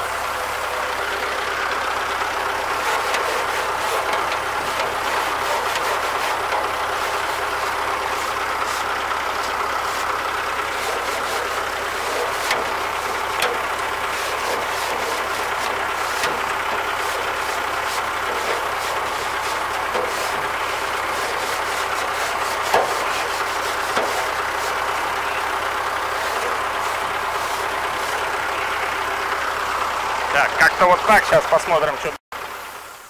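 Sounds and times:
compressed air blow gun hissing: 0:02.8 - 0:25.0.

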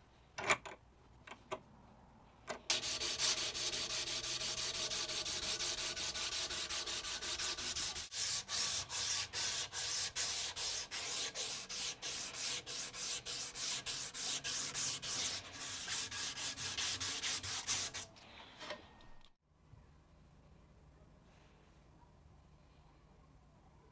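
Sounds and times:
sandpaper rasping on wood: 0:02.7 - 0:18.1.

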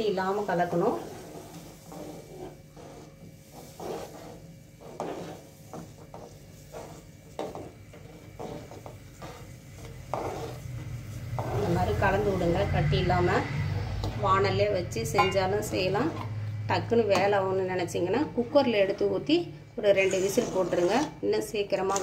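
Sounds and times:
spoon scraping metal pan: 0:00.7 - 0:12.4, 0:19.9 - 0:21.2.

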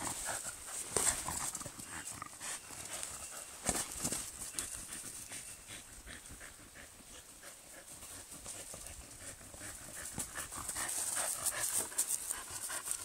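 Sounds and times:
dog panting: 0:00.0 - 0:13.0.

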